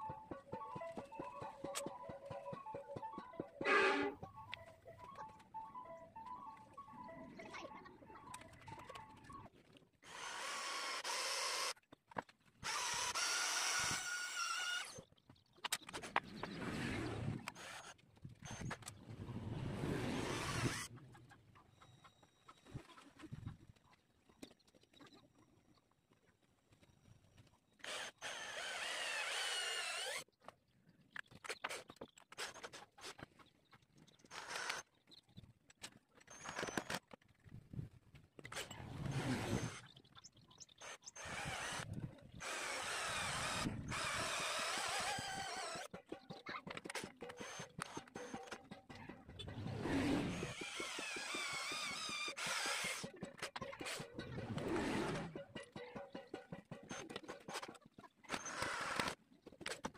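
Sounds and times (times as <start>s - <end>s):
metal fitting squealing: 3.6s - 4.2s
cordless drill whining: 10.0s - 11.8s, 12.6s - 15.0s, 20.2s - 20.9s, 27.8s - 30.2s, 40.8s - 45.9s, 50.3s - 53.1s, 58.3s - 59.2s.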